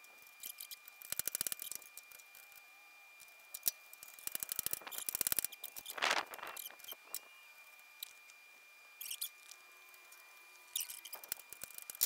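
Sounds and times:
ratchet clicking: 0.4s - 1.9s, 3.6s - 5.9s.

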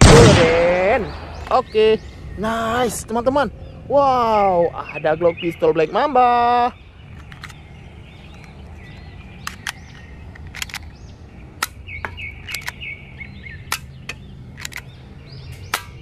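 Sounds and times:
birds chirping: 0.0s - 16.0s
low hum: 6.6s - 16.0s
pellet pistol clicks and snaps: 9.4s - 11.0s, 11.6s - 11.8s, 12.4s - 12.8s, 13.7s - 14.9s, 15.6s - 16.0s.

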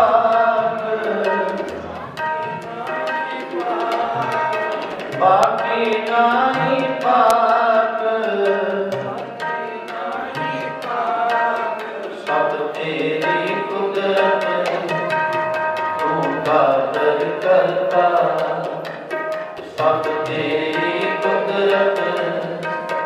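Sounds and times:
person singing a hymn: 0.0s - 1.5s, 2.7s - 4.4s
harmonium chords: 0.0s - 23.0s
tabla strokes: 0.0s - 23.0s.

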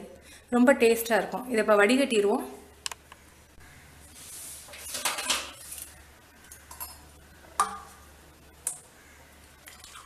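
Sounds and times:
metal utensils clinking: 4.8s - 5.9s.

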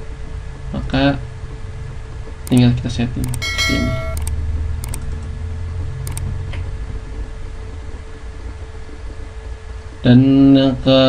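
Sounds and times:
computer mouse clicking: 3.2s - 5.0s, 6.1s - 6.3s
faint constant tone: 3.2s - 5.0s.

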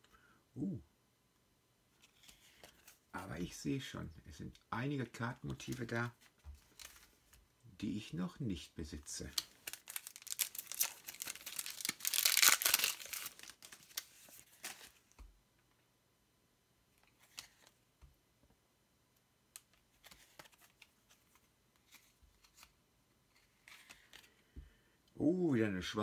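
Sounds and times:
foil pack crinkling and tearing: 9.3s - 14.9s.

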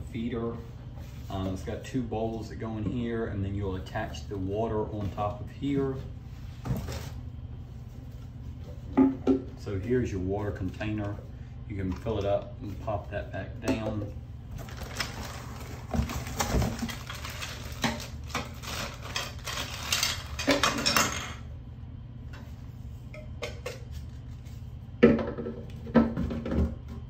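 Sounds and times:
plastic packaging rustling: 14.5s - 20.6s.

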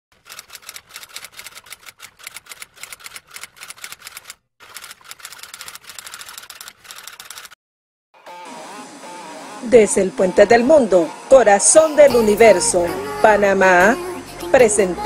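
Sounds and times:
rapid typewriter-style clacking: 0.1s - 7.6s.

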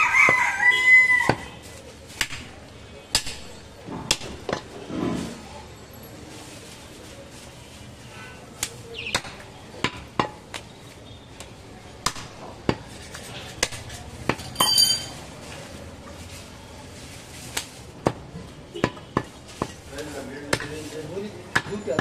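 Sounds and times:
ringing metallic clink: 14.4s - 15.2s.

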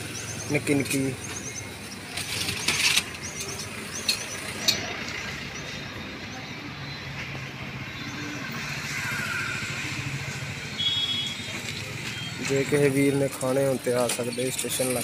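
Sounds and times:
street traffic noise: 0.0s - 15.0s
sharp clicks and clatters: 2.0s - 5.4s.

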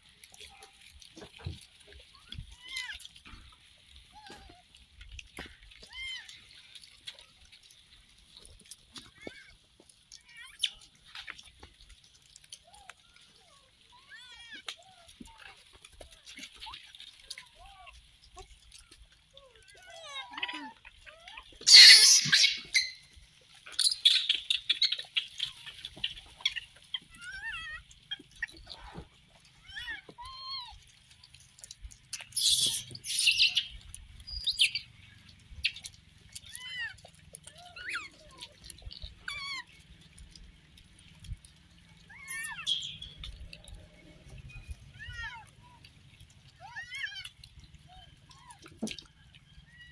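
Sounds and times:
monkeys squealing: 21.3s - 28.8s, 32.3s - 34.8s, 35.6s - 39.8s, 42.1s - 43.2s
monkey screech: 21.6s - 23.0s, 23.7s - 25.0s, 32.3s - 33.7s, 42.1s - 43.0s
monkey squeaks and chirps: 21.6s - 23.1s, 23.7s - 25.6s, 32.3s - 34.9s, 42.1s - 43.4s.

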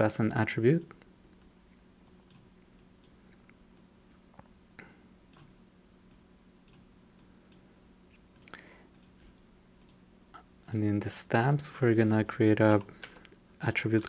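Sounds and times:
faint room hum: 0.0s - 14.0s
computer mouse clicks: 8.3s - 9.2s, 9.8s - 10.0s.

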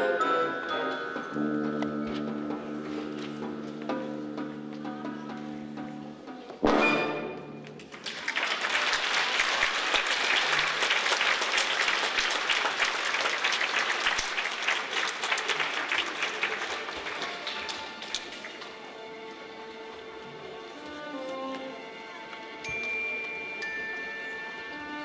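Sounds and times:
audience applauding: 7.8s - 18.8s.

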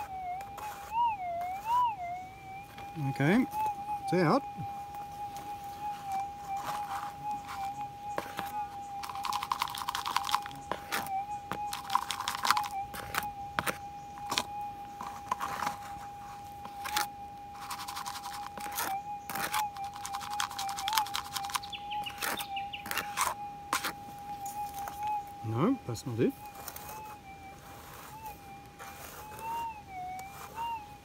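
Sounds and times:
metal detector threshold tone: 0.0s - 31.0s
gravel rattling in plastic scoop: 7.6s - 12.8s, 19.7s - 23.0s.

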